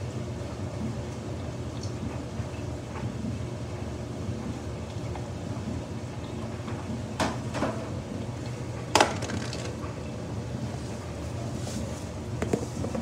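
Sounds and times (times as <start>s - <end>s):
washing machine motor hum: 0.0s - 13.0s
water tumbling in drum: 8.8s - 10.0s.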